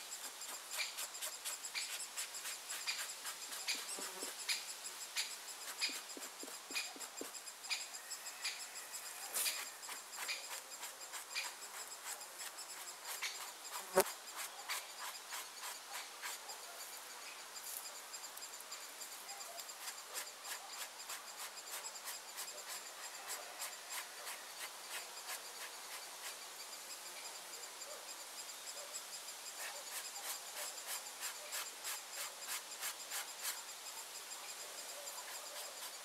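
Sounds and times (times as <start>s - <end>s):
insects chirring: 0.0s - 36.0s.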